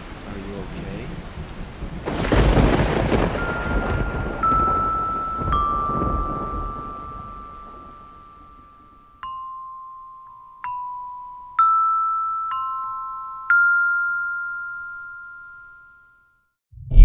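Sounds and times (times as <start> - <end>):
bell-like chime notes: 3.4 - 16.5
low rumble: 16.7 - 17.0.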